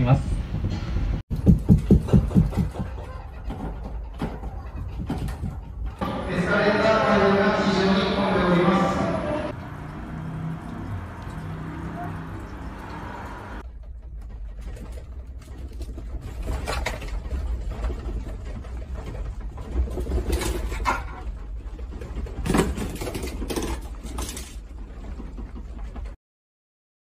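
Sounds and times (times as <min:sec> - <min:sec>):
objects rattling and clattering: 0:01.3 - 0:06.0, 0:13.6 - 0:26.2.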